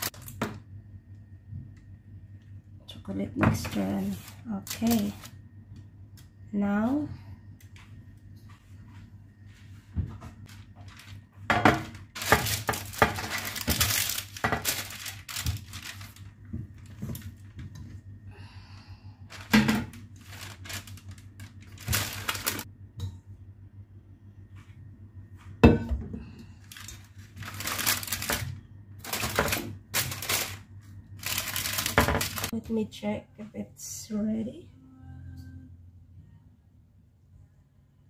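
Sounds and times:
parchment paper crinkling: 0:03.6 - 0:05.4, 0:10.4 - 0:17.6, 0:19.3 - 0:22.7, 0:26.6 - 0:32.6.

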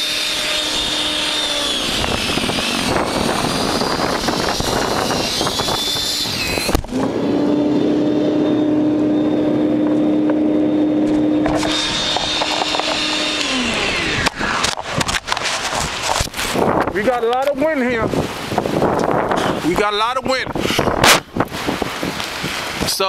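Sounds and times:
snow thrower motor humming: 0:00.0 - 0:16.7.

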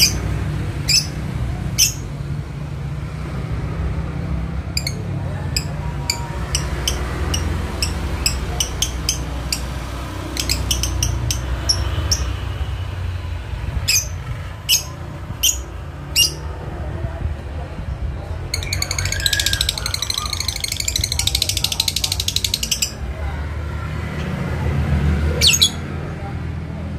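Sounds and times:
bird shrill chirps: 0:10.3 - 0:12.3, 0:18.6 - 0:23.0
bird rattling chatter: 0:18.6 - 0:23.0.

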